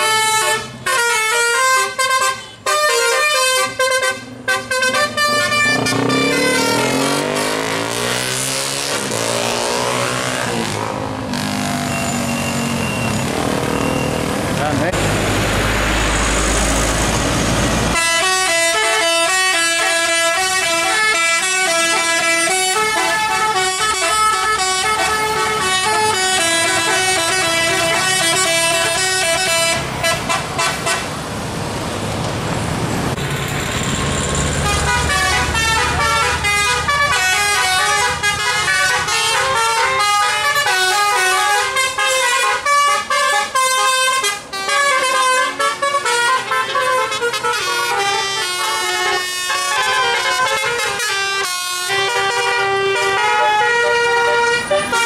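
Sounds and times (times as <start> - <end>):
musical air horn playing a tune: 0.0 - 10.3, 18.0 - 31.0, 34.6 - 55.0
rushing noise: 10.5 - 18.0.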